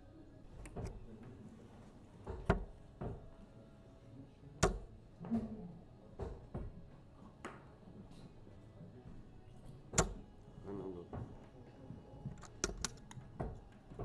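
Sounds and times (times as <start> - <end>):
darts thudding into dartboard: 4.6 - 5.5, 9.9 - 10.2.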